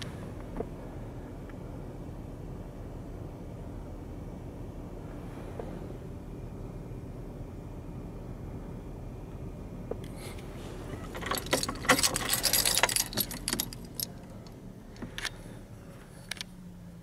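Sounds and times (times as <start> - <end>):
car keys jangling: 11.0 - 15.4.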